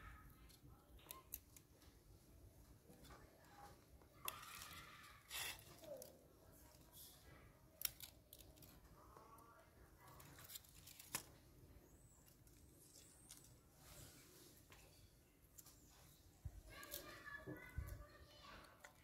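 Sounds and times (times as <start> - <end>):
faint voice-like sounds: 2.6 - 14.6.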